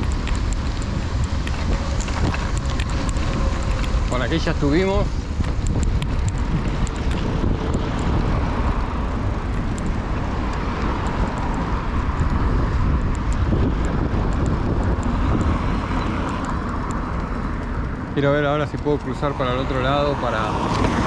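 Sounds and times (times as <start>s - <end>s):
bicycle road noise: 0.0s - 21.0s
wind rumble on microphone: 0.0s - 21.0s.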